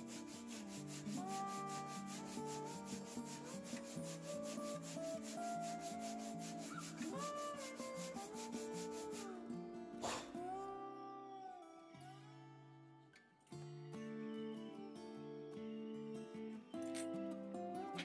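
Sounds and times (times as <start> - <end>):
sandpaper sanding wood: 0.0 - 9.4
background music: 0.0 - 12.6.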